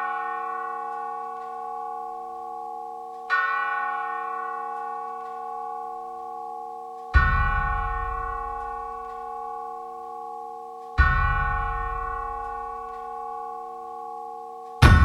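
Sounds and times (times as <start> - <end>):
large bell tolling: 7.2 - 9.8, 11.0 - 15.0.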